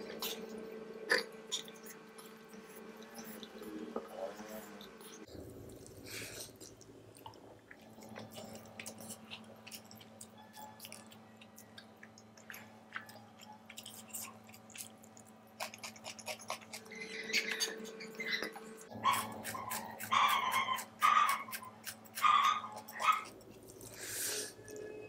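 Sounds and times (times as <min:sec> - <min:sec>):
close-miked chewing: 0:00.0 - 0:24.9
faint steady hum: 0:00.0 - 0:25.0.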